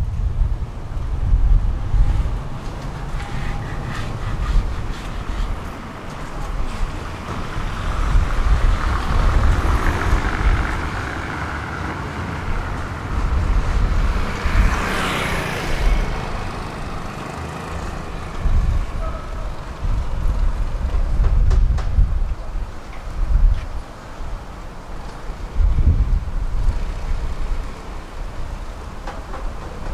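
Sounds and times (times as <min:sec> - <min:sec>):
wind buffeting microphone: 0:00.0 - 0:29.9
vehicle passing: 0:01.6 - 0:20.3.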